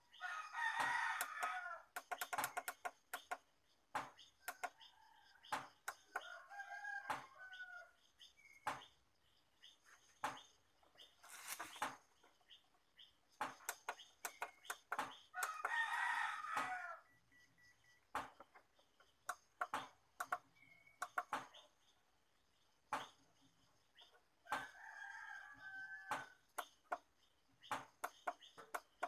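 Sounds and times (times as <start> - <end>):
rooster crowing: 0.2 - 1.9, 6.2 - 7.9, 15.4 - 17.1, 24.5 - 26.4
sharp clicks: 1.2 - 3.5, 13.4 - 15.8.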